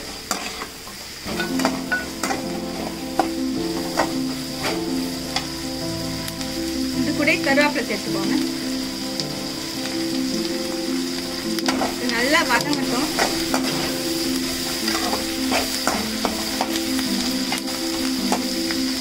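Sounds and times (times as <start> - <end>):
ladle scraping a metal pan: 0.0 - 5.0
onions sizzling in oil: 0.0 - 19.0
soft background music: 1.3 - 19.0.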